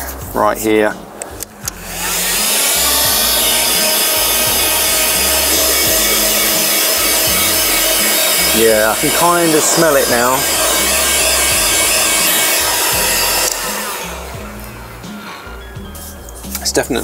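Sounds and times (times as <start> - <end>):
hot air gun fan whine and rush: 1.6 - 15.6
hot air gun switch clicks: 13.4 - 13.7.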